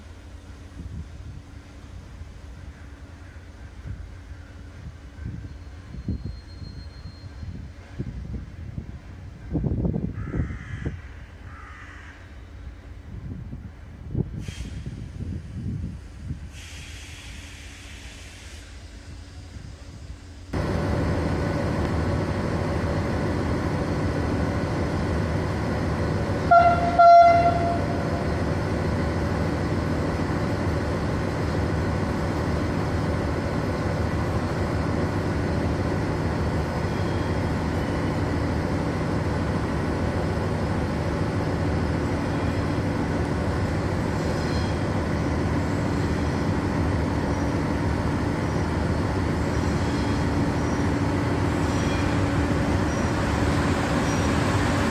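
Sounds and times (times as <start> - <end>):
electric locomotive running hum: 0.0 - 54.9
train horn blasts: 26.4 - 28.4.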